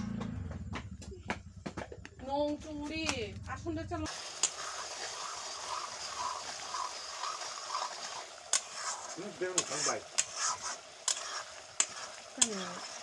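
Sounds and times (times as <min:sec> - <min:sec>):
chicken sizzling in a pan: 0:04.1 - 0:13.0.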